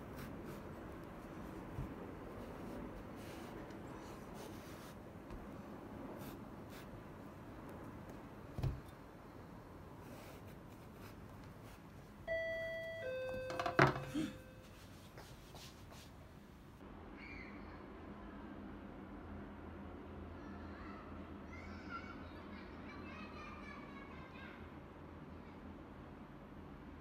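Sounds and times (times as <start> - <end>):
thump on cutting board: 8.6 - 8.8
two-tone doorbell chime: 12.3 - 14.8.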